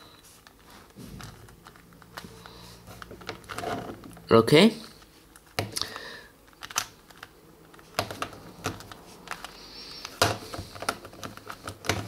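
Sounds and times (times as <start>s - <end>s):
plastic puzzle cube clicking: 5.4s - 12.0s.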